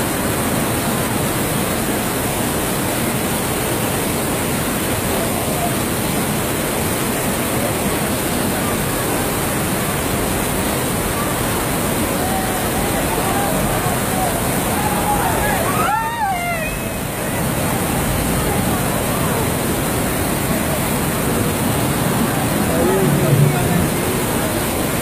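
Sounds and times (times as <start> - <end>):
floodwater rushing down a street: 0.0 - 25.0
faint voices: 7.3 - 25.0.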